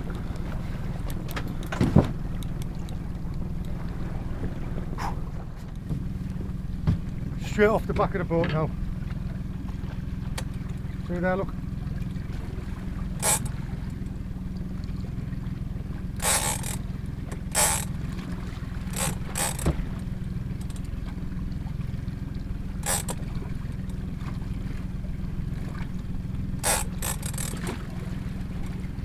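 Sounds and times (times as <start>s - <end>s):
steady low hum: 0.0s - 29.0s
fishing reel drag bursts: 13.2s - 13.5s, 16.2s - 16.8s, 17.5s - 17.9s, 18.9s - 19.7s, 22.8s - 23.2s, 26.6s - 27.6s.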